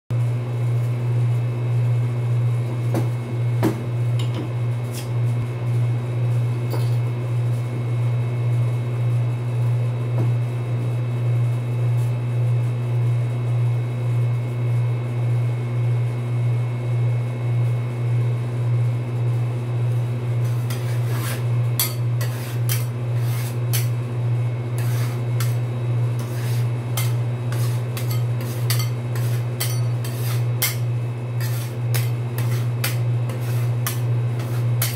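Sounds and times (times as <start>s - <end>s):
refrigeration unit humming: 0.2s - 34.9s
metal spatulas scraping steel plate: 20.4s - 24.0s, 24.8s - 25.6s, 26.2s - 34.9s.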